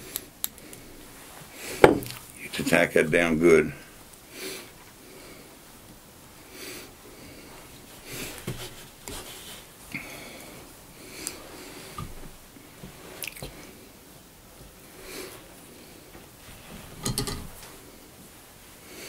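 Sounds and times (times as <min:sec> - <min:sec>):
man breathing wheezily: 0:09.9 - 0:12.0
small tools clicking and tapping: 0:17.0 - 0:17.6.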